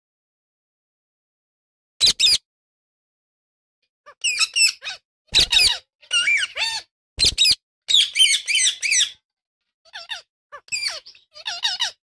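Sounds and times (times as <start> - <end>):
parrots chirping: 2.0 - 2.4, 4.1 - 9.2, 9.9 - 12.0.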